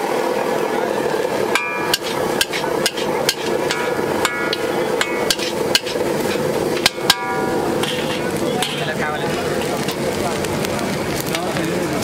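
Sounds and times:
stir-fry sizzling hiss: 0.0s - 12.0s
metal ladle clanging on wok: 1.5s - 9.0s.

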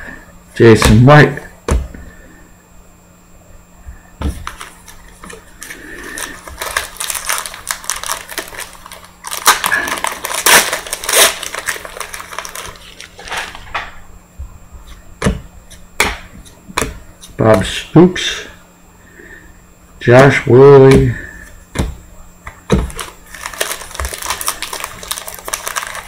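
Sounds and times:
foil wrapper crinkling and tearing: 4.4s - 13.7s, 22.9s - 26.0s.

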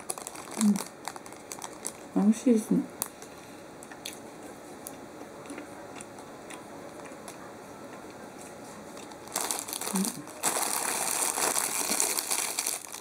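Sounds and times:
person chewing: 5.4s - 7.4s.

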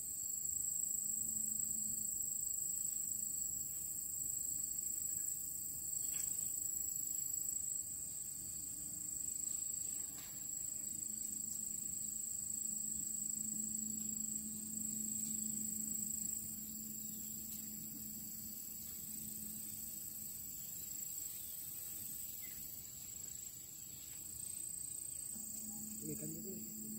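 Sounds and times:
insects trilling: 0.0s - 26.9s
faint low hum: 7.8s - 26.9s.

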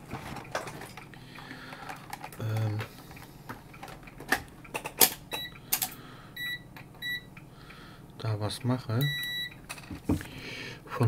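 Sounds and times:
sharp handling clicks and knocks: 0.0s - 6.0s
multimeter continuity beep: 5.3s - 5.6s, 6.4s - 7.3s, 9.0s - 9.6s.

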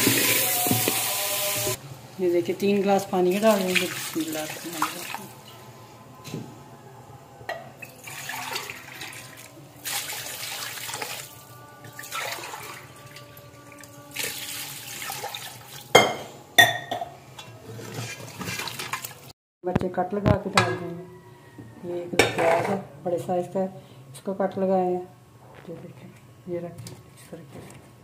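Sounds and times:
water pouring into pot: 3.4s - 5.3s, 7.9s - 11.3s, 11.9s - 13.2s, 14.1s - 15.9s.

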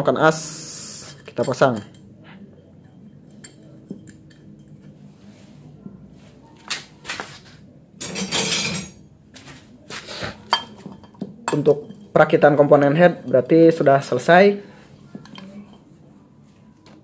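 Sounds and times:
metal parts clattering: 8.0s - 9.0s.

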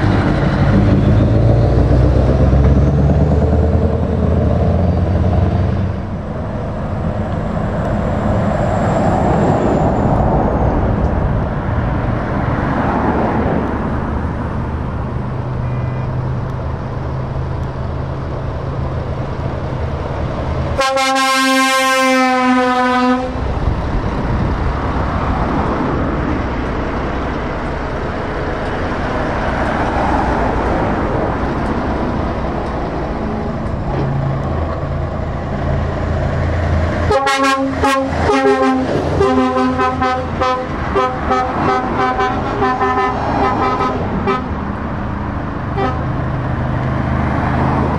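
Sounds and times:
road traffic rumble: 0.0s - 47.9s
truck diesel engines: 0.0s - 47.9s
short air horn toots: 20.8s - 23.4s, 37.1s - 44.5s
truck air horn blasts: 20.8s - 23.4s, 37.1s - 44.5s, 45.8s - 46.1s.

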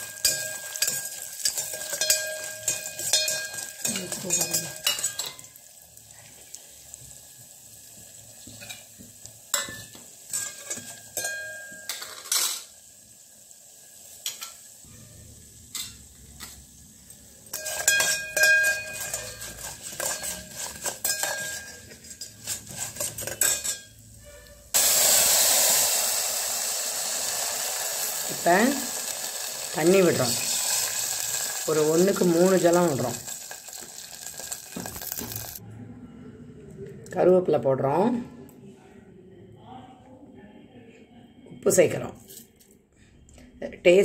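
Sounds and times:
water hissing in hot oil: 0.0s - 9.6s, 24.7s - 35.6s
food frying in oil: 0.0s - 35.6s
spoon scraping metal pot: 17.5s - 24.7s.

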